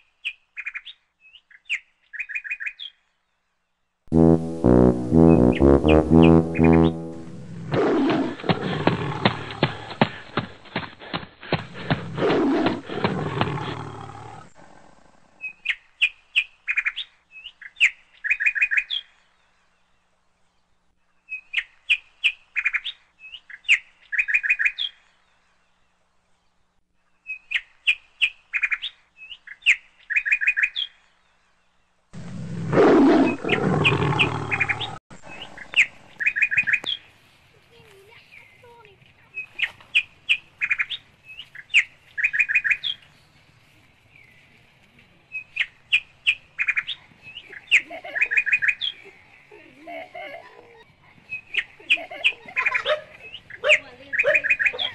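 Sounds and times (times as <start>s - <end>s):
short high chirps: 4.1s - 7.6s
tiger roar: 7.7s - 10.0s, 11.6s - 15.4s, 32.2s - 36.2s.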